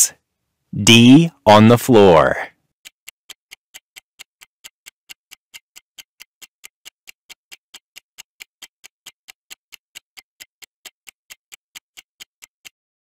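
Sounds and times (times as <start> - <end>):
countdown timer ticking: 0.8 - 2.5.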